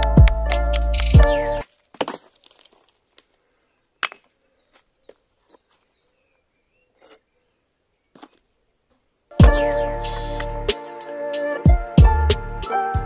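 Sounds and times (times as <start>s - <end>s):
faint bird chirps: 3.4s - 8.3s.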